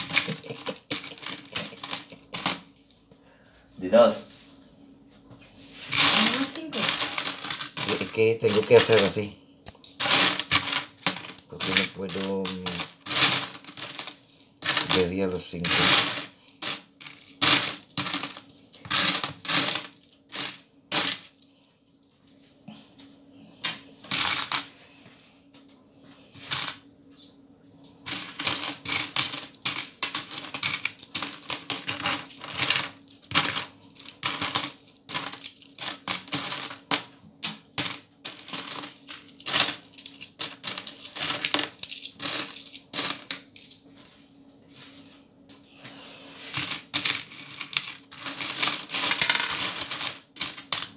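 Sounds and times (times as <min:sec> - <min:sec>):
coins clinking in plastic tray: 0:00.0 - 0:03.1, 0:05.9 - 0:21.6, 0:24.1 - 0:24.7, 0:26.4 - 0:26.8, 0:28.0 - 0:43.8, 0:46.5 - 0:50.9.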